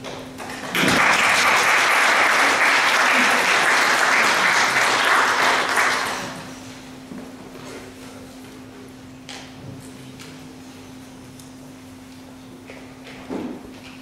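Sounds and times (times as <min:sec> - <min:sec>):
audience clapping: 0:00.0 - 0:06.6.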